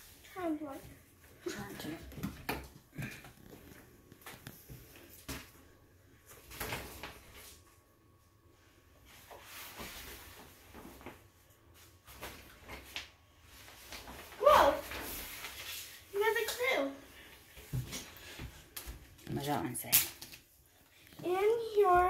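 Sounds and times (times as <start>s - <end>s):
shower curtain rustling: 8.6s - 18.8s.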